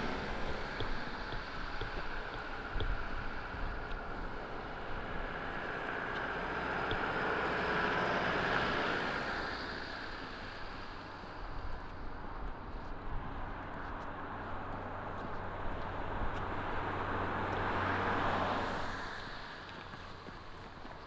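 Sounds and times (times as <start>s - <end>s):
vehicle passing by: 0.0s - 11.0s.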